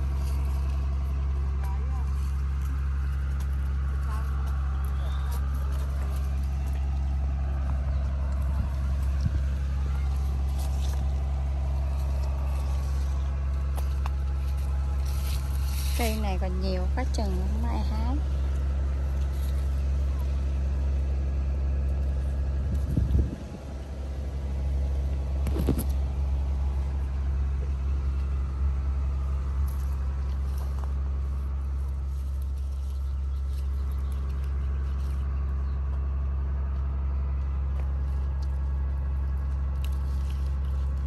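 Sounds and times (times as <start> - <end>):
leaves rustling: 0.0 - 41.0
steady low rumble: 0.0 - 41.0.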